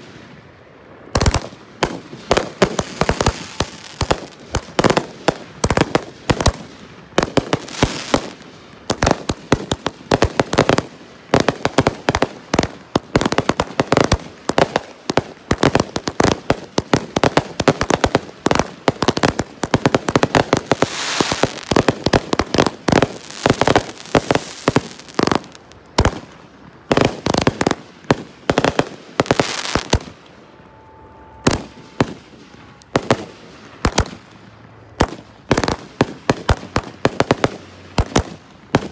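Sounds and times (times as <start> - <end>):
fireworks bangs and crackles: 1.1 - 30.4, 31.4 - 38.9
fireworks hissing: 20.0 - 25.7.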